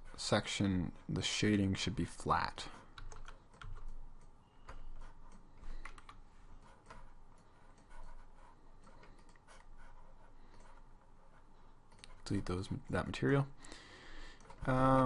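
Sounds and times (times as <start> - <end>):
keyboard keystrokes: 3.0 - 6.2.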